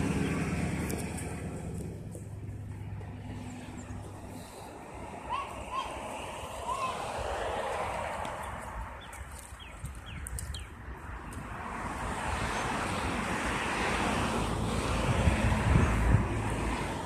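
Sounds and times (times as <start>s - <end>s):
wind buffeting microphone: 8.7s - 13.5s, 14.9s - 17.0s.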